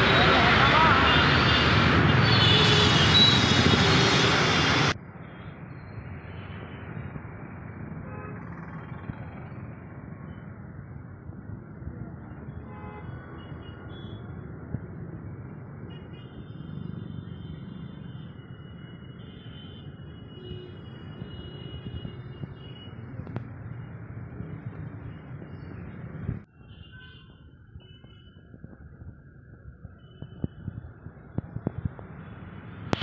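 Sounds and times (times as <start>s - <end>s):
traffic engines rumbling: 0.0s - 33.0s
vehicle horn: 1.0s - 4.4s.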